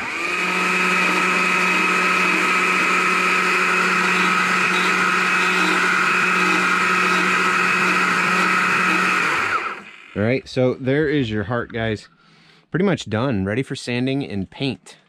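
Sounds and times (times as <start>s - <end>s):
chainsaw running at high speed: 0.0s - 10.2s.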